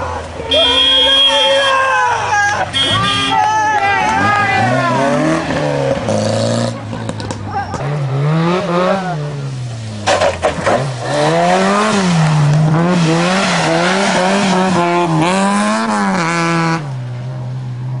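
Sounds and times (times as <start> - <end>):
rally car engine revving: 3.8 - 18.0
tyres on gravel: 9.6 - 16.0.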